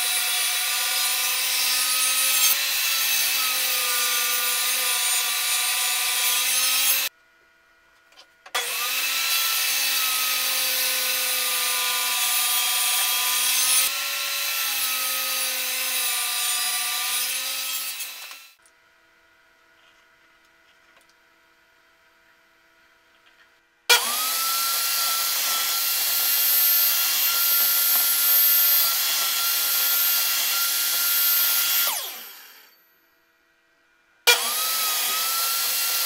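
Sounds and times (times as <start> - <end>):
table saw cutting plywood: 0.0 - 7.1, 8.6 - 18.6, 23.9 - 32.8, 34.3 - 36.0.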